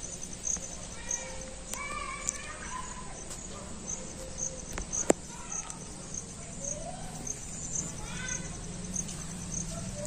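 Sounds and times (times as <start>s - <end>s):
insects chirping: 0.0s - 10.0s.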